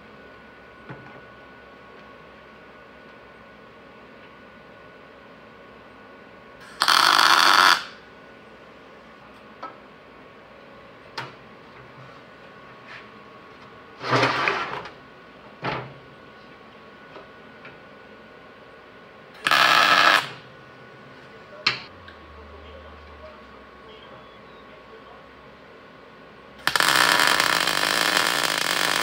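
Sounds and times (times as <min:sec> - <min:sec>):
welding bursts: 0:06.6 - 0:08.0, 0:19.4 - 0:20.4, 0:26.6 - 0:29.0.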